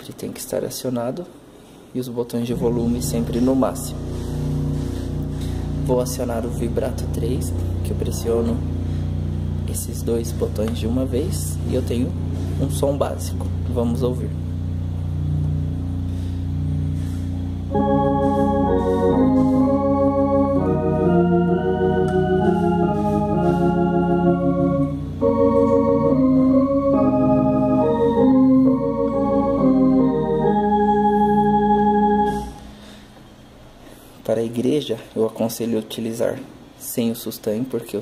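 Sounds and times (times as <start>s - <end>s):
held low bass note: 2.5s - 32.8s
electronic organ chords with vibrato: 2.5s - 33.2s.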